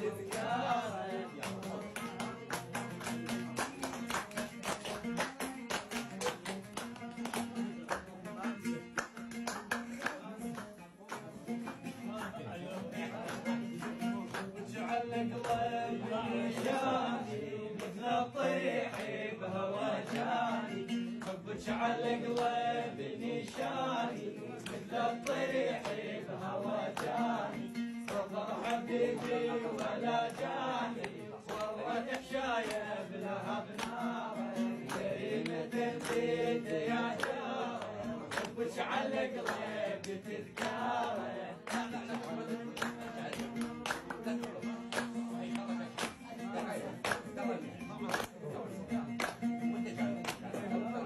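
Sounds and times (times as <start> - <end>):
man singing: 0.0 - 4.1, 11.1 - 51.0
oud playing: 12.9 - 48.0.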